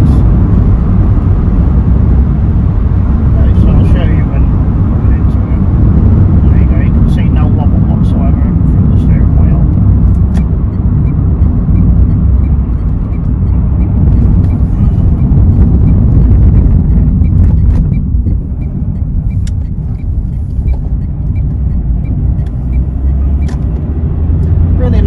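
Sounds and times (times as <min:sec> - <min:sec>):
car engine and road rumble: 0:00.0 - 0:25.0
faint regular ticking: 0:09.5 - 0:24.6.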